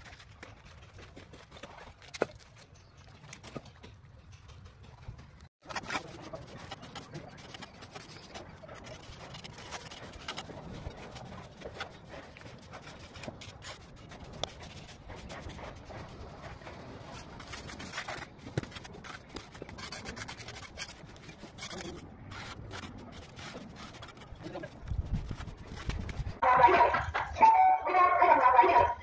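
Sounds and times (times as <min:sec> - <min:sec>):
trowel scraping wet plaster: 0:05.6 - 0:26.4.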